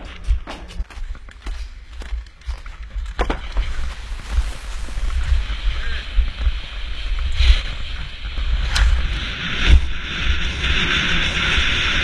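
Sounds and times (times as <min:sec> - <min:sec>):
wind buffeting microphone: 0:00.0 - 0:12.0
skis scraping over snow: 0:02.8 - 0:12.0.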